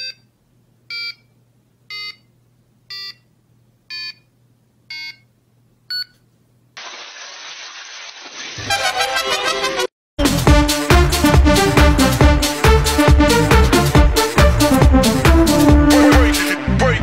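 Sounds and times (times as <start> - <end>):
electronic countdown beeps: 0.0 - 0.3, 0.9 - 1.3, 1.9 - 2.3, 2.9 - 3.3, 3.9 - 4.3, 4.9 - 5.3, 5.9 - 6.2.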